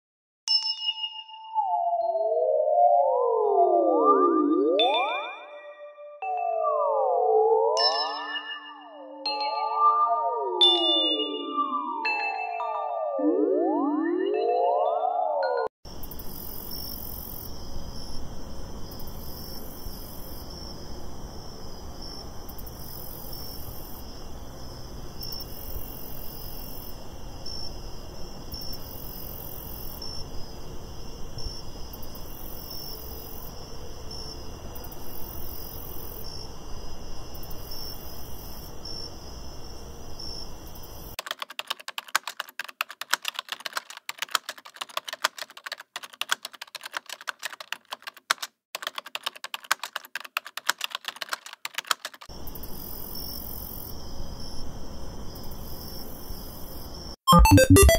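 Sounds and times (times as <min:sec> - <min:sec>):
crickets chirping: 0:15.9 - 0:41.2, 0:52.4 - 0:57.2
rapid keyboard typing: 0:41.2 - 0:52.3, 0:57.3 - 0:57.9.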